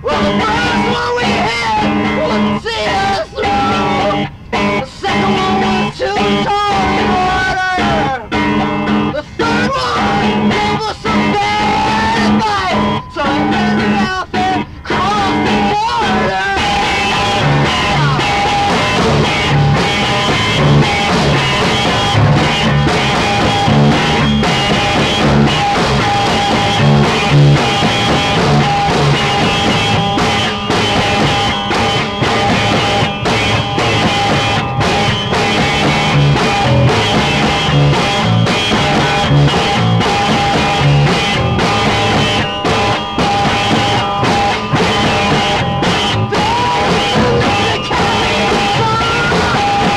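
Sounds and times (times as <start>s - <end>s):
instrumental rock music: 0.0s - 49.9s.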